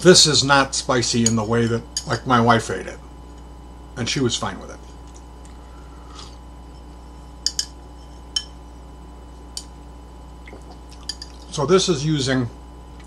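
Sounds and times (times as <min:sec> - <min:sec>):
steady low hum: 0:00.0 - 0:13.0
spoon clinking against dish: 0:07.5 - 0:08.6.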